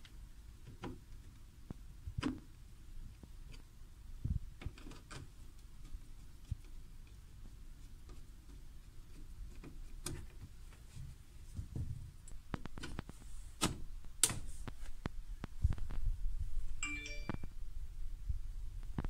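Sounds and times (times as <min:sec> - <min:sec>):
short electronic beep: 0:16.8 - 0:17.5.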